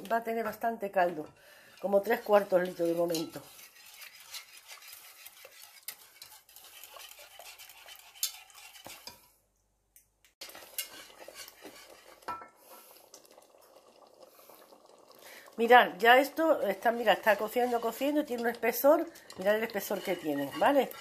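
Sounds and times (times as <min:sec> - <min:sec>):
wire whisk stirring sauce: 0:01.7 - 0:09.3, 0:10.4 - 0:12.5, 0:16.4 - 0:21.0.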